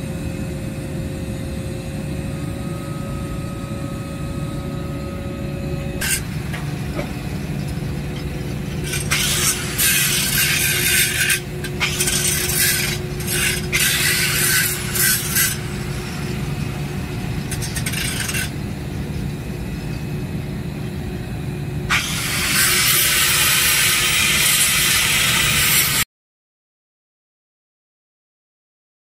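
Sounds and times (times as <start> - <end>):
angle grinder grinding steel: 5.9 - 18.8, 21.9 - 26.0.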